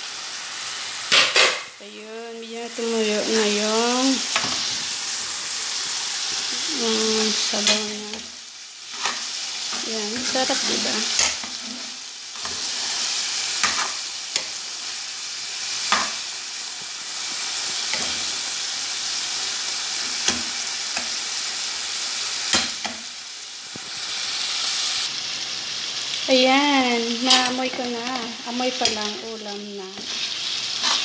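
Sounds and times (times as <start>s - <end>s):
food sizzling in a frying pan: 0.0s - 31.0s
metal utensil clicking on pan: 1.1s - 1.8s, 7.2s - 8.2s, 11.1s - 11.6s, 22.5s - 23.0s, 27.2s - 29.2s.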